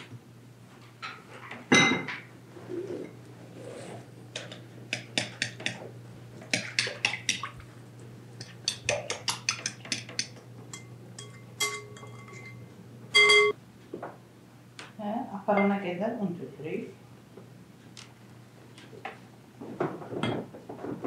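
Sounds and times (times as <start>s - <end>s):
utensil clinking against mixing bowl: 4.4s - 5.8s, 6.5s - 7.5s, 8.4s - 12.6s.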